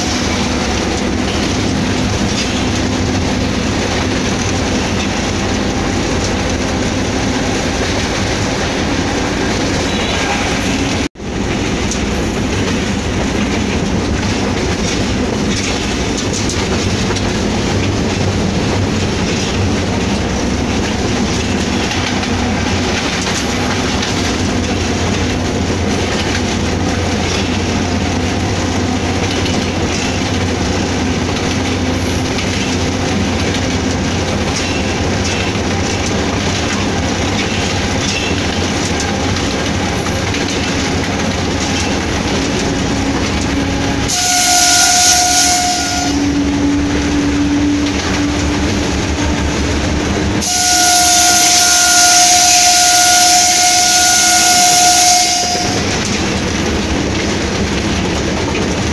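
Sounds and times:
locomotive engine and wheels rumbling: 0.0s - 58.9s
locomotive air horn blasts: 42.8s - 48.5s, 50.4s - 56.0s.

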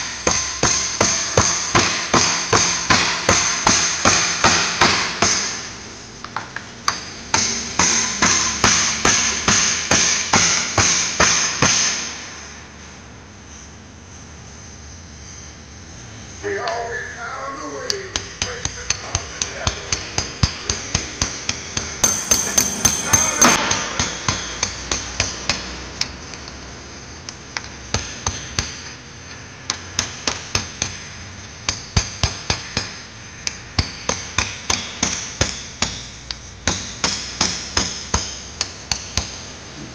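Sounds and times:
hammer striking metal: 22.0s - 23.7s.

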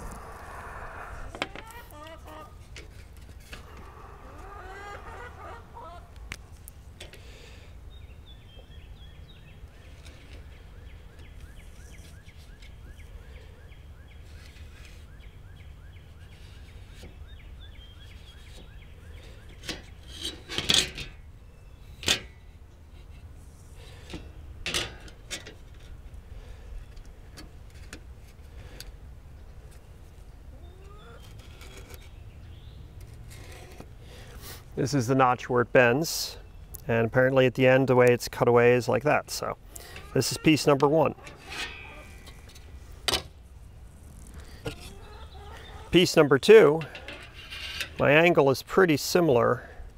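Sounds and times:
faint bird calls: 0.0s - 2.6s, 3.5s - 6.3s, 30.5s - 34.6s, 39.7s - 42.8s, 43.6s - 47.3s.

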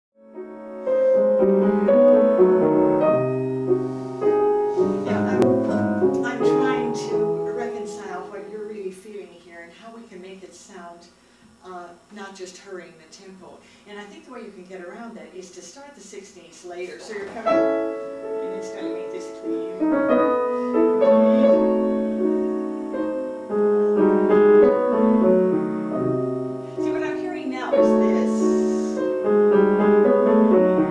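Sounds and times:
grand piano classical chords: 0.2s - 9.5s, 17.2s - 30.9s.

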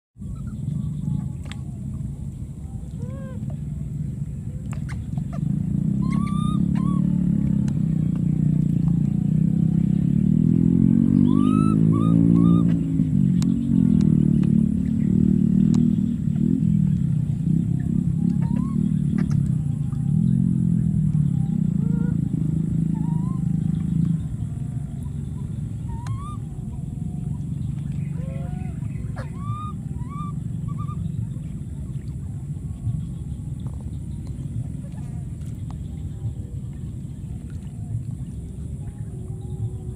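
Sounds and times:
motor engine running: 0.2s - 39.9s
steady low rumble: 0.2s - 39.9s
high chirping calls: 4.8s - 7.4s, 11.0s - 14.3s, 17.5s - 32.0s
baby monkey squeaking: 6.0s - 7.1s, 11.3s - 12.7s, 18.4s - 18.8s, 29.2s - 31.0s.

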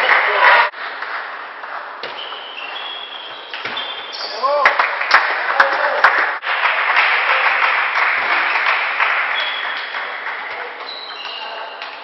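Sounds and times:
spectators applauding: 0.0s - 0.7s, 4.4s - 11.8s.

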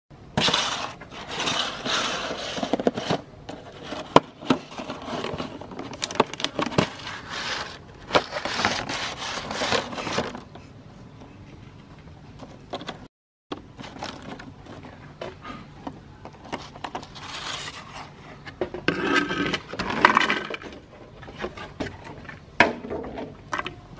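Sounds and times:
plastic container crinkling: 0.4s - 10.5s.

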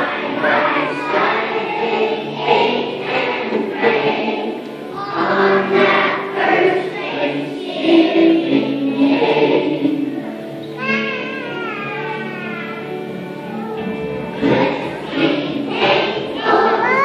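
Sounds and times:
children's choir singing: 0.0s - 17.0s.

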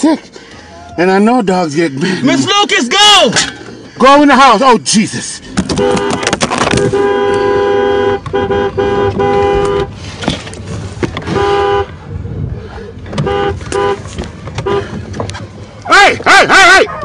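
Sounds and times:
two-tone car horn blasts: 5.7s - 10.0s, 11.2s - 12.0s, 13.2s - 14.0s, 14.6s - 15.0s.

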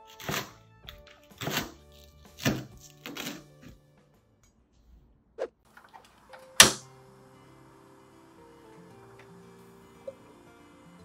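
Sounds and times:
gas igniter snapping: 5.7s - 7.0s
gas burner hissing: 5.7s - 11.0s
gas stove knob clicking: 5.8s - 6.8s.

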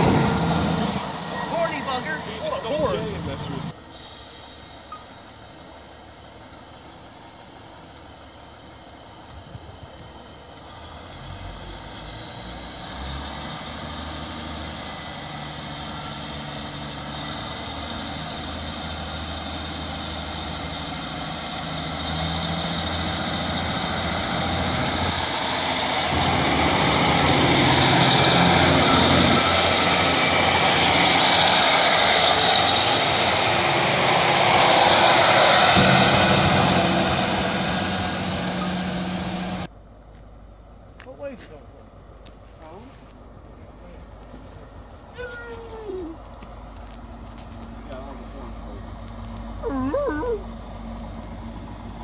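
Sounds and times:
diesel train engine hum: 0.0s - 52.0s
train wheels rumbling on rails: 14.8s - 39.7s.

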